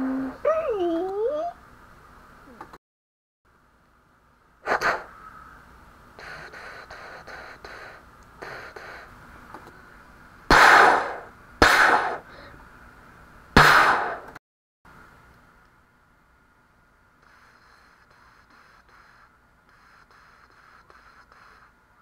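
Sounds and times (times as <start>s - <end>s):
toy pistol gunshots: 10.5s - 12.2s, 13.6s - 14.2s.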